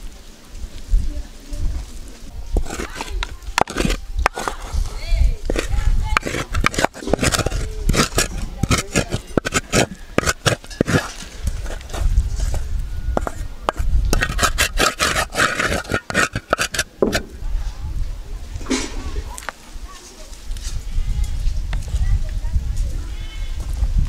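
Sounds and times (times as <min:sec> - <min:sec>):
spoon scraping metal pan: 0:02.6 - 0:12.6, 0:13.2 - 0:17.3.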